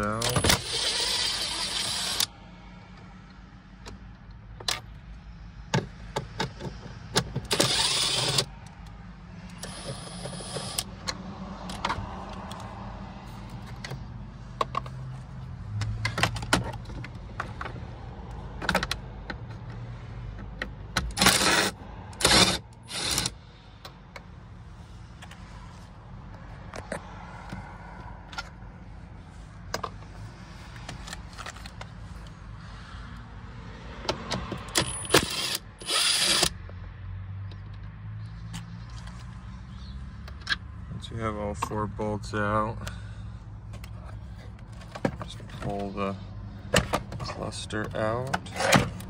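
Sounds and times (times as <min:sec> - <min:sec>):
cordless drill spinning bolts: 0:00.2 - 0:02.3, 0:07.4 - 0:08.5, 0:09.5 - 0:10.9, 0:21.0 - 0:23.4, 0:34.6 - 0:36.6
handling clicks and knocks: 0:05.6 - 0:07.7, 0:14.6 - 0:21.5, 0:29.7 - 0:32.0, 0:43.7 - 0:45.9.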